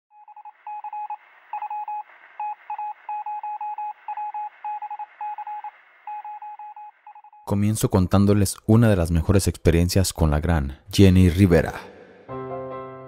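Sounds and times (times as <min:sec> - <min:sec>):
morse code beeping: 0:00.1 - 0:07.5.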